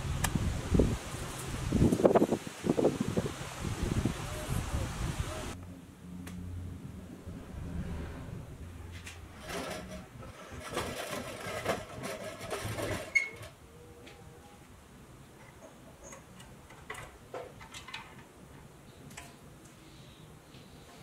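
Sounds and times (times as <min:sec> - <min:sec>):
toy trucks rattling on wood: 0:09.4 - 0:13.6.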